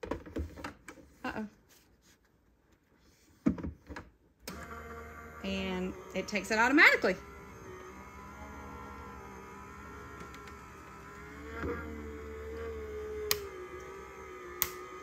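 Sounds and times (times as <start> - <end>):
electric motor running: 4.5 - 15.0.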